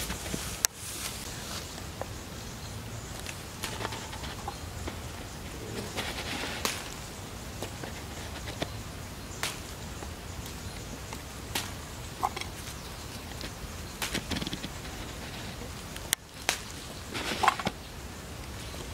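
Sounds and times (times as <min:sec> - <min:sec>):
leaves rustling: 0:00.0 - 0:18.9
stems snapping: 0:03.1 - 0:08.8, 0:09.4 - 0:17.8.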